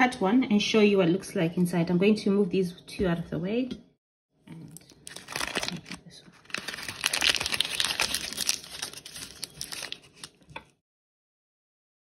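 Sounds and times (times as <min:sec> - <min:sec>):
paper cupcake case crinkling: 0:04.7 - 0:10.6.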